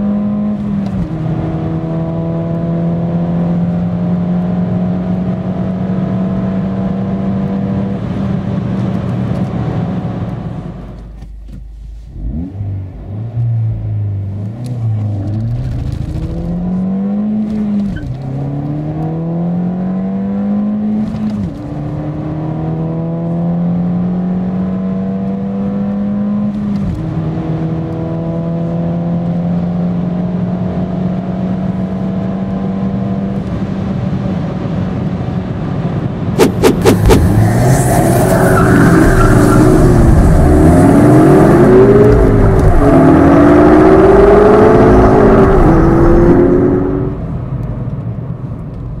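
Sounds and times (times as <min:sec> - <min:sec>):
car engine accelerating hard: 0:00.0 - 0:11.1, 0:12.0 - 0:48.1
rising and falling tones: 0:36.4 - 0:47.2.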